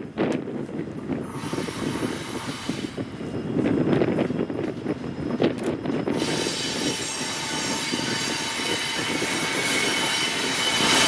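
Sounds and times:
train rumbling past: 0:00.0 - 0:11.0
shrill wheel squeal: 0:06.2 - 0:11.0.

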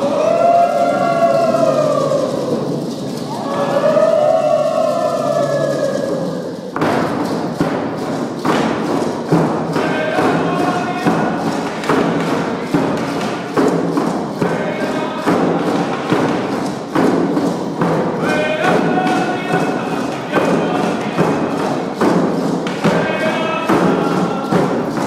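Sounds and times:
group of voices chanting: 0:00.0 - 0:07.0
frame drums beating: 0:00.0 - 0:25.0.

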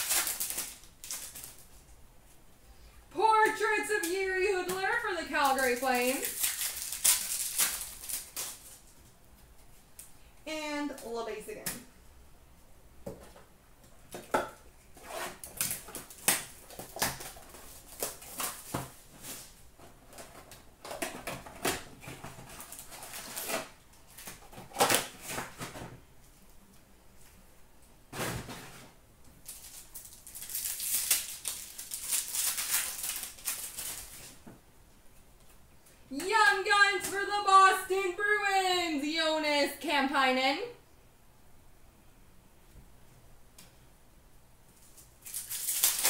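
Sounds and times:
wrapper being torn open: 0:00.0 - 0:01.7, 0:05.4 - 0:08.9, 0:15.4 - 0:18.8, 0:22.4 - 0:25.5, 0:29.4 - 0:34.4, 0:44.8 - 0:46.0
rustling of packs and cards: 0:04.1 - 0:09.0, 0:28.4 - 0:34.4.

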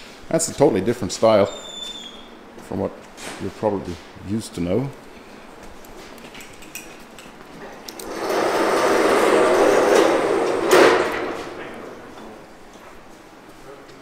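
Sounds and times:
loud rough machine noise: 0:08.0 - 0:12.2.

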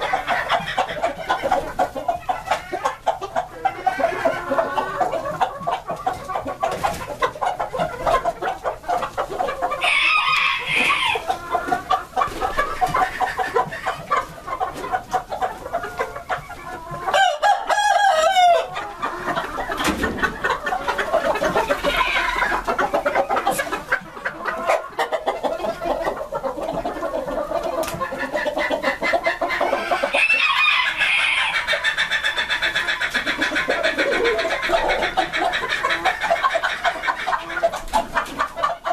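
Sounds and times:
chickens clucking: 0:00.0 - 0:38.9
roosters crowing: 0:02.5 - 0:05.4, 0:09.6 - 0:12.0, 0:16.9 - 0:23.5, 0:29.5 - 0:37.6.

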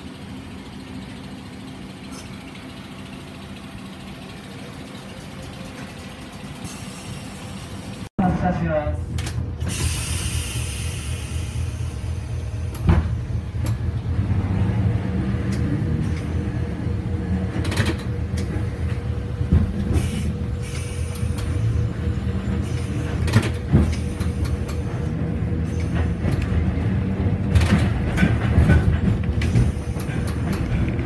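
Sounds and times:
streetcar running noise: 0:00.0 - 0:31.0
rattles and knocks: 0:27.5 - 0:31.0.

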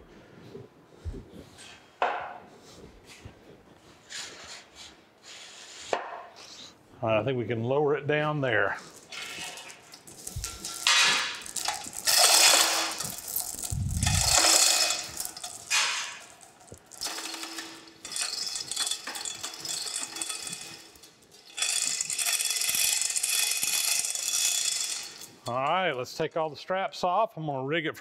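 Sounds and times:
hoist chain rattling: 0:09.0 - 0:25.8.

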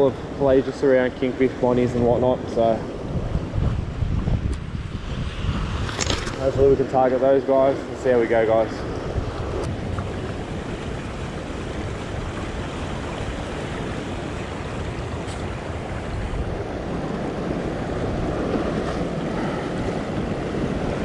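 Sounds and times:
wind buffeting microphone: 0:00.0 - 0:21.0
sea swell surging against rocks: 0:08.0 - 0:21.0.

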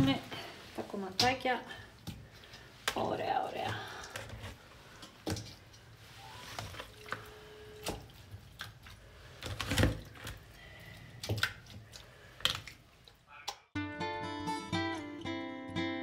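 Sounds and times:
wet meat squelching: 0:06.3 - 0:13.3.

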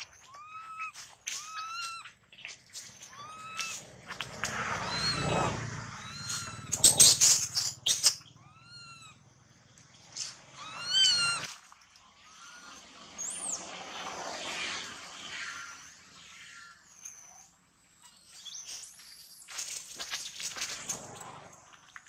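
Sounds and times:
baby monkey crying: 0:00.2 - 0:02.1, 0:03.1 - 0:03.8, 0:04.9 - 0:05.3, 0:06.0 - 0:07.2, 0:07.9 - 0:09.2, 0:10.6 - 0:11.5, 0:12.3 - 0:12.8.

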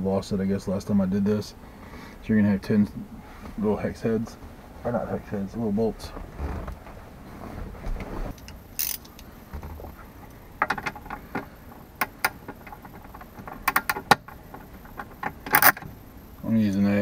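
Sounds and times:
socket ratchet clicking: 0:08.4 - 0:09.3, 0:10.6 - 0:15.9.

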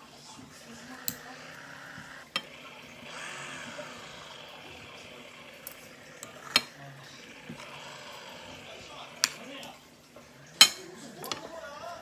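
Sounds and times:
cutlery clinking against a bowl: 0:02.3 - 0:02.6, 0:06.2 - 0:06.8, 0:10.6 - 0:11.6.

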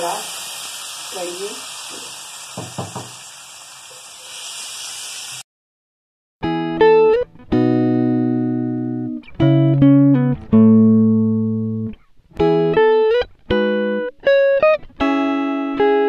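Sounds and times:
guitar melody: 0:06.4 - 0:16.0.

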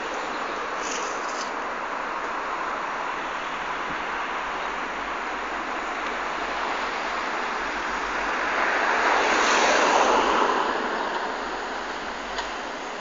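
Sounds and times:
vehicle passing close by: 0:08.4 - 0:11.5.

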